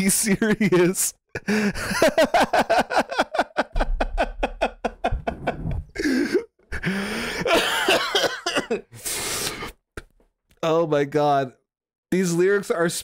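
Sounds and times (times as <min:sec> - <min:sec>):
man laughing hard: 0:00.4 - 0:08.9
high gasp: 0:06.0 - 0:07.5.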